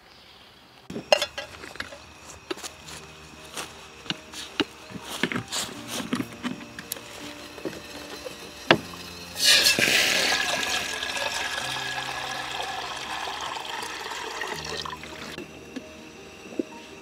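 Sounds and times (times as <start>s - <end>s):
water pouring into metal kettle: 6.9s - 15.4s.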